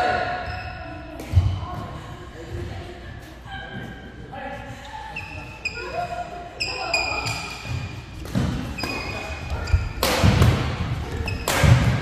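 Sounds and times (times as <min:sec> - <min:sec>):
shoes squeaking on court: 0:00.4 - 0:01.6, 0:04.8 - 0:12.0
racket hitting shuttlecock: 0:07.2 - 0:12.0.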